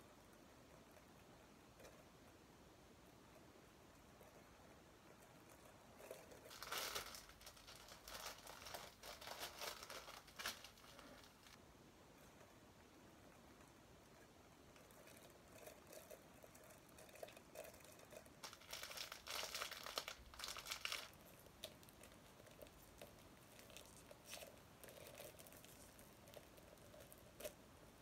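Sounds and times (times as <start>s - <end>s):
packaging crinkling and rustling: 6.4s - 11.6s, 18.4s - 22.8s.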